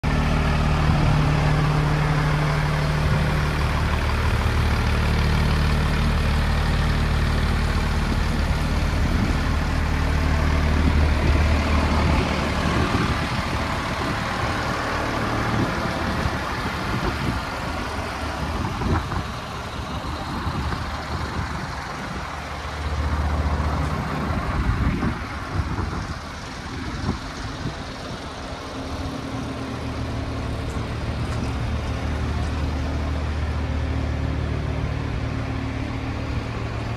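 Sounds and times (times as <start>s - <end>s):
diesel engine idling: 0.0s - 36.9s
wind rumbling on microphone: 7.4s - 33.6s.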